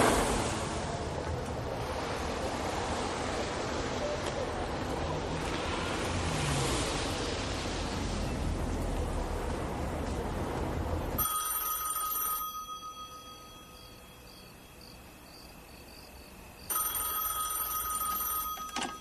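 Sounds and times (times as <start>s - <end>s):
low street hum: 0.0s - 19.0s
telephone ringing: 11.2s - 15.0s, 16.7s - 19.0s.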